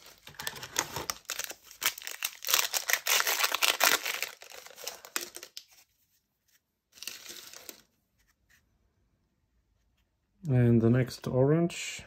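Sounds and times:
plastic wrapper tearing and crinkling: 0.0 - 5.8, 6.9 - 7.9
cards rustling and clicking: 0.0 - 5.9, 6.5 - 8.6.

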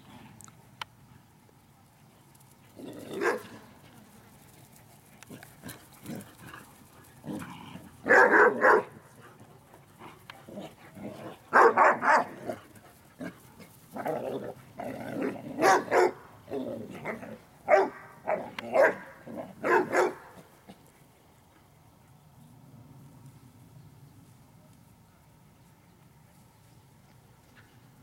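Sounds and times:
puppies barking: 8.1 - 8.9, 11.5 - 12.4, 15.6 - 16.2, 17.7 - 20.4.

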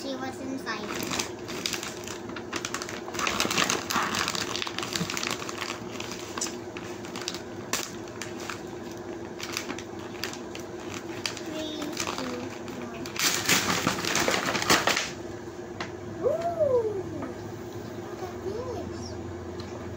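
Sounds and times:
steady hum: 0.0 - 19.9
plastic bag crinkling: 0.7 - 15.2.

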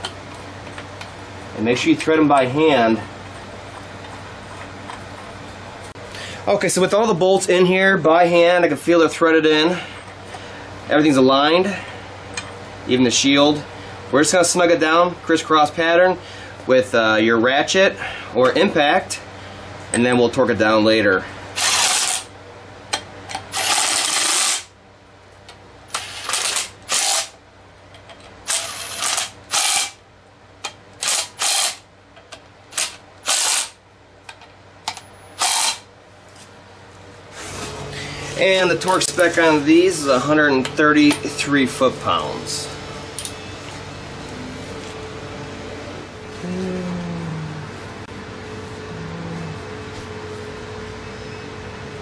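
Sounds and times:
cordless impact driver bursts: 21.6 - 22.2, 26.0 - 27.3, 28.5 - 30.0, 31.0 - 31.8, 32.8 - 33.8, 35.4 - 35.8.

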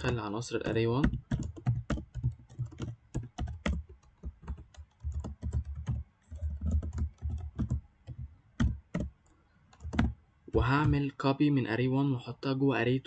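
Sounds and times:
typing on a computer keyboard: 0.0 - 11.0.

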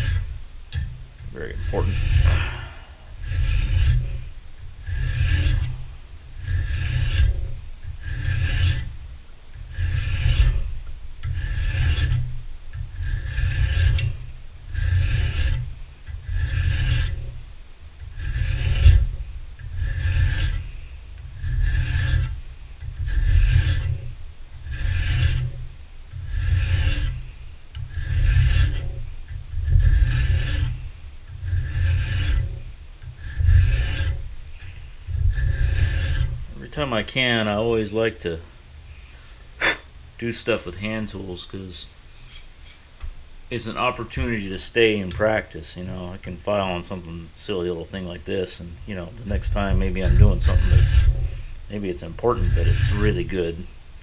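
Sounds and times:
file rasping on metal: 0.0 - 17.4, 18.0 - 38.3, 49.0 - 53.7.

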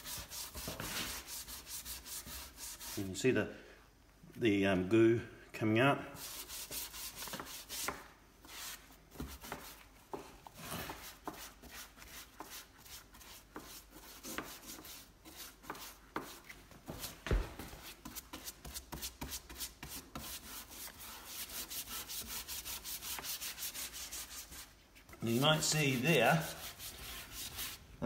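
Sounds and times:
brush scrubbing wet wood: 0.0 - 3.1, 17.8 - 27.8.

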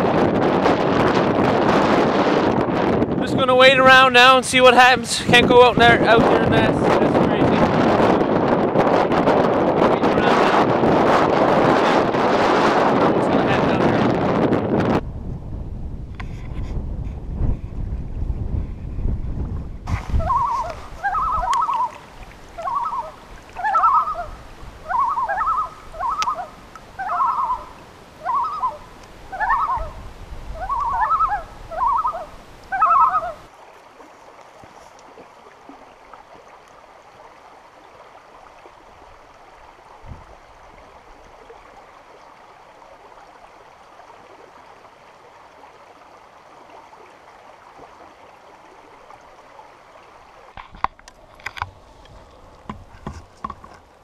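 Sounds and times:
shallow rocky stream rushing: 0.0 - 14.9, 19.8 - 54.0
wind buffeting microphone: 0.0 - 33.6, 38.6 - 42.1.

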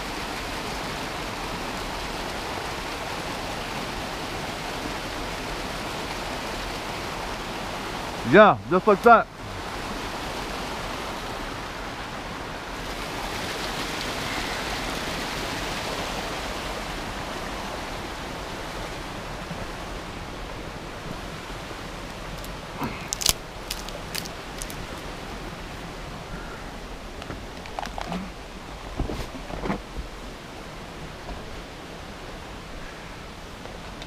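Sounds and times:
water rushing over rocks: 0.0 - 34.0
clicks and knocks on rocks: 22.2 - 25.1, 27.2 - 28.3.

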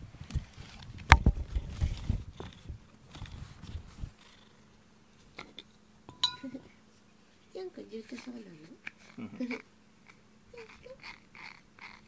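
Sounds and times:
cat purring: 4.1 - 4.7.

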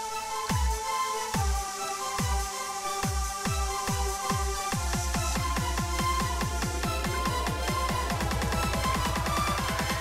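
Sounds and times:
deep kick drum: 4.8 - 10.0.

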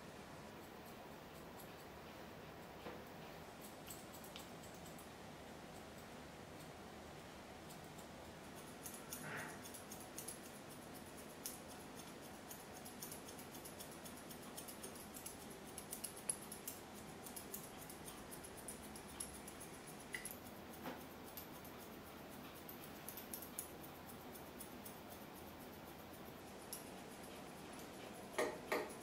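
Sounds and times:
scissors snipping fur: 3.0 - 5.1, 7.7 - 29.0.

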